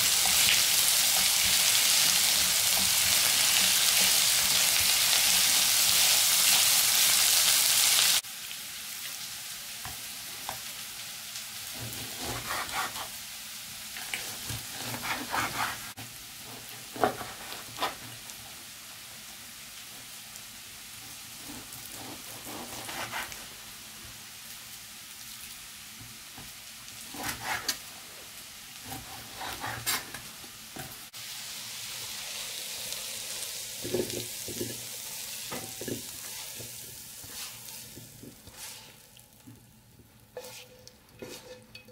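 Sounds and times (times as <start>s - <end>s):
spatula stirring in a pan: 0.0s - 6.5s, 11.7s - 13.2s, 14.0s - 18.1s, 21.1s - 23.6s, 27.0s - 31.0s, 33.4s - 41.9s
vegetables sizzling in oil: 0.0s - 41.9s
knife slicing meat on board: 12.0s - 13.1s, 14.6s - 15.9s, 22.0s - 23.4s, 27.2s - 27.8s.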